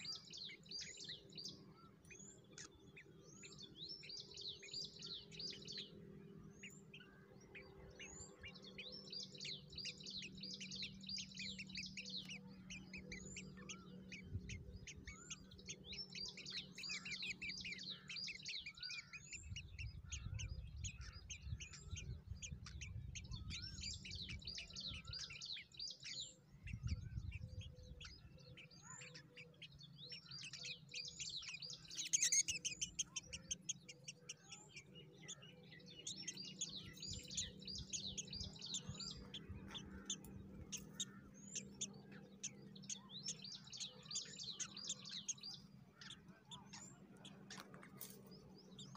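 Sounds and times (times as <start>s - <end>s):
nestlings begging chirps: 0.0s - 48.9s.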